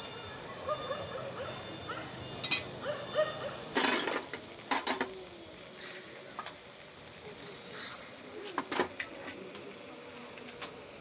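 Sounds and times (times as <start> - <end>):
dishes and utensils clattering: 2.4 - 2.8, 3.7 - 5.2.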